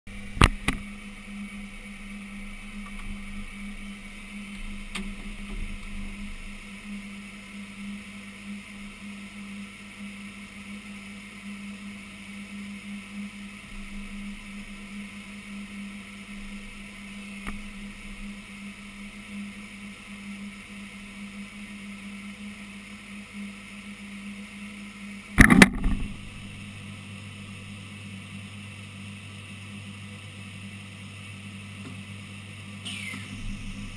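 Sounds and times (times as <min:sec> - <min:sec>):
router machine hum: 0:24.8 - 0:28.8, 0:32.8 - 0:33.9.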